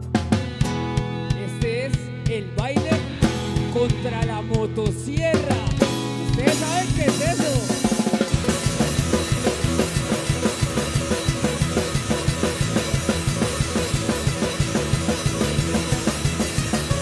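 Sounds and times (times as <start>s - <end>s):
fast drum beat: 0.0s - 17.0s
guitars: 0.0s - 17.0s
punk band playing live: 0.0s - 17.0s.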